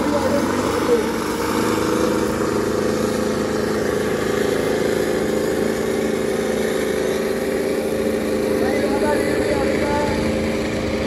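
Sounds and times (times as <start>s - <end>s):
tractor diesel engines droning: 0.0s - 11.0s.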